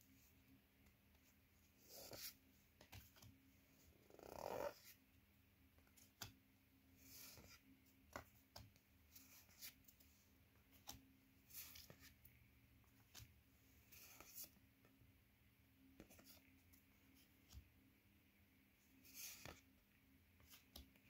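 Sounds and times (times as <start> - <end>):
cards sliding and clicking: 7.0 - 9.9, 10.7 - 12.2, 13.9 - 14.6, 19.0 - 19.7, 20.4 - 21.0.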